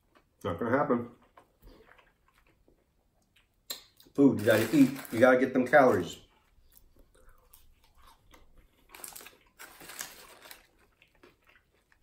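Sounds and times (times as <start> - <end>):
chewing french fries: 0.0 - 4.2, 6.3 - 12.0
paper bag crinkling: 4.3 - 6.2, 8.9 - 11.0.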